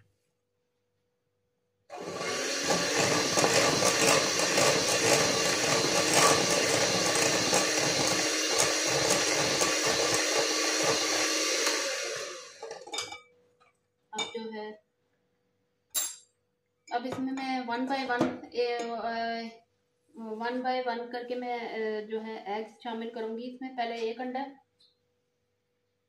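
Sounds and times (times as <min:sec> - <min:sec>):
electric mixer whirring: 0:01.9 - 0:12.9.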